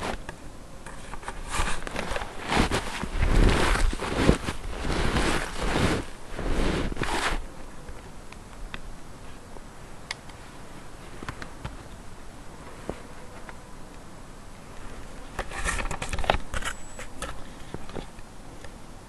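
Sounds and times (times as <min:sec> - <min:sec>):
footsteps in snow: 0:00.0 - 0:00.2, 0:00.9 - 0:07.6.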